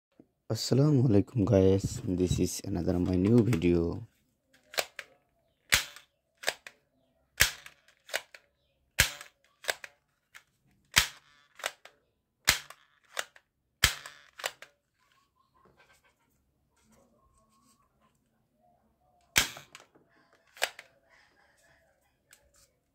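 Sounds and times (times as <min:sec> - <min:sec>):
toy pump-action gun clacking: 0:04.6 - 0:05.1, 0:05.7 - 0:06.8, 0:07.4 - 0:14.8, 0:19.4 - 0:21.0.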